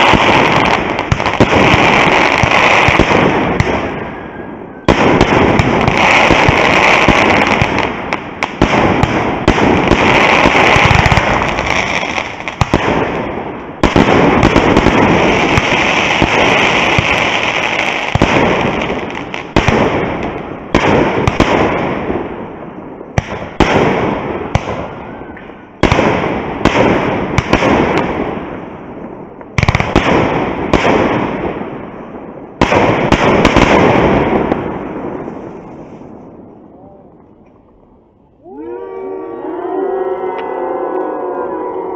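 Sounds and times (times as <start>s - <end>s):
fireworks bangs: 0.0s - 37.8s
fireworks crackling: 0.0s - 37.9s.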